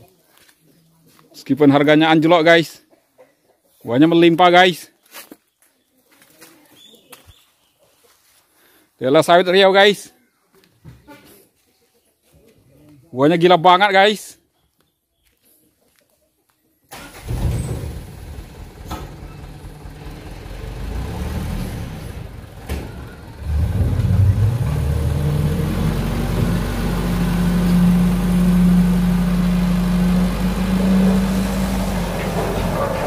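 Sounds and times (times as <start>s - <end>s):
truck engine revving: 17.0s - 33.0s.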